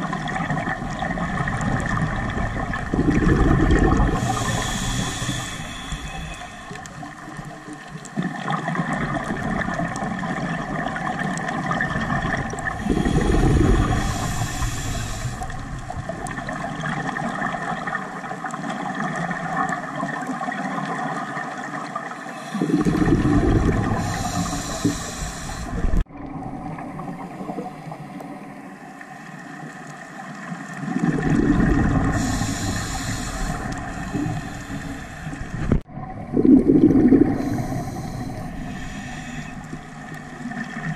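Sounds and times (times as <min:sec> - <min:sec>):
rumbling exhaled bubbles: 0:00.0 - 0:21.4, 0:22.5 - 0:28.5, 0:30.8 - 0:40.9
steady underwater hiss: 0:00.0 - 0:26.1, 0:26.7 - 0:40.9
regulator hiss on inhale: 0:04.1 - 0:07.6, 0:12.6 - 0:15.8, 0:22.2 - 0:22.9, 0:23.9 - 0:26.0, 0:32.0 - 0:35.8, 0:37.2 - 0:40.2.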